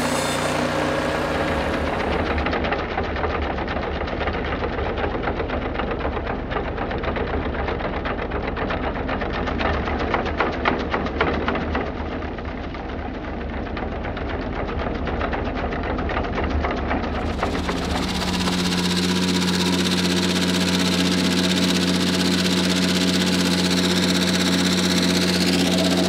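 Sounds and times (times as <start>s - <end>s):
tractor engine running: 0.0s - 9.4s, 17.0s - 26.0s
sickle bar mower clattering: 17.1s - 26.0s.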